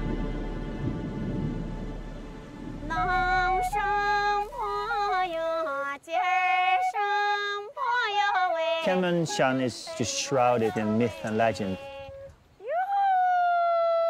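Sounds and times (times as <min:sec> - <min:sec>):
low music drone: 0:00.0 - 0:05.3
woman singing folk song: 0:02.9 - 0:12.4.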